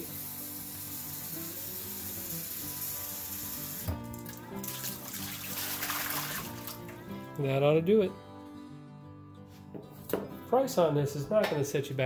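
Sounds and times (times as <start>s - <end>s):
faucet running water into glass: 0.0s - 6.9s
water poured into steel sink: 4.1s - 6.9s.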